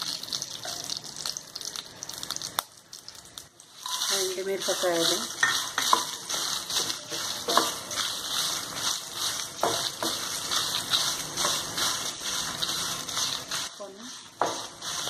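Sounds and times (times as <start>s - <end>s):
spices sizzling in oil: 0.0s - 15.0s
wooden spatula scraping pan: 3.8s - 15.0s.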